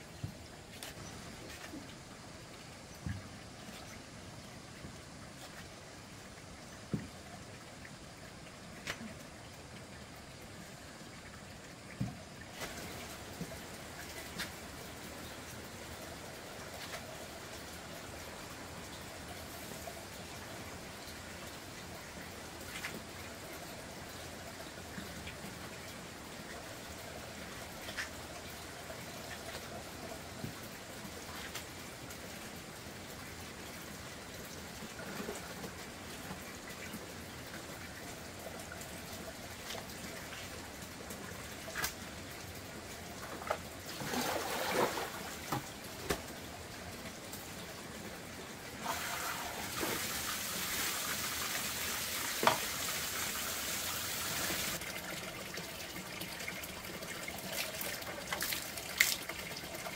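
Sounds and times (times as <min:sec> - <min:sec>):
water running from pipe into tank: 0:05.0 - 0:59.9
strong rush of water from tap: 0:43.8 - 0:45.7, 0:48.8 - 0:59.9.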